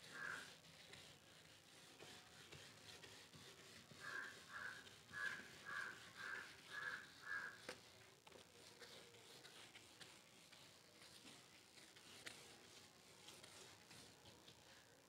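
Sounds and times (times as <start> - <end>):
crow cawing: 0.1 - 0.4, 4.0 - 7.6.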